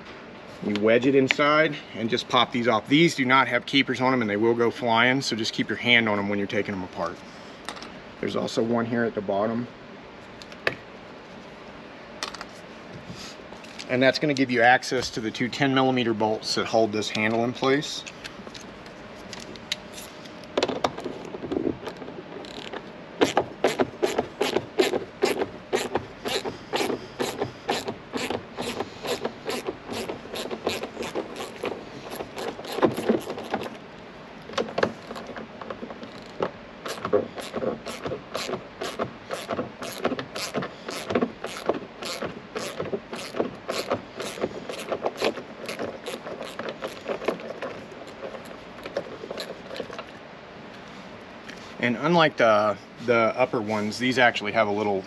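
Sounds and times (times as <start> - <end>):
ratchet wrench clicking: 36.1 - 47.4.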